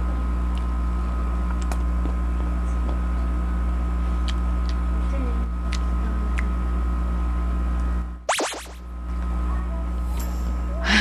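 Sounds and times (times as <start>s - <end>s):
low hum: 8.3s - 8.9s.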